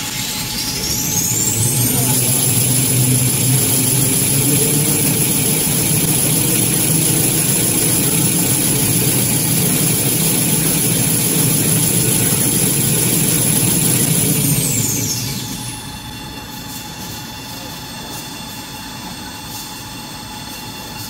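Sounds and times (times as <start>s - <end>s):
machinery motors and conveyors: 0.0s - 21.0s
thin high whine: 0.0s - 21.0s.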